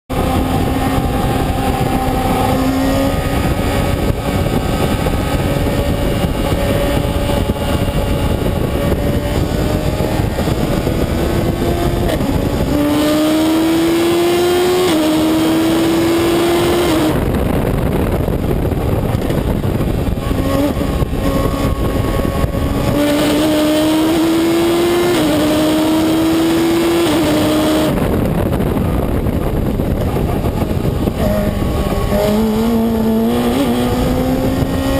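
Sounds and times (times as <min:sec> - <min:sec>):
racing car engine accelerating: 0:00.1 - 0:34.9
wind and road noise: 0:00.1 - 0:34.9.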